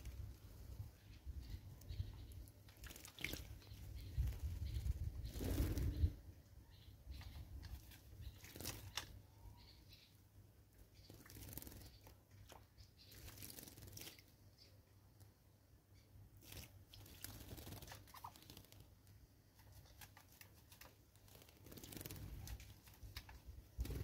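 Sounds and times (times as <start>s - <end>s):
small birds splashing in water: 1.4s - 6.0s, 7.1s - 9.2s, 11.0s - 14.6s, 16.4s - 19.0s, 19.6s - 24.0s.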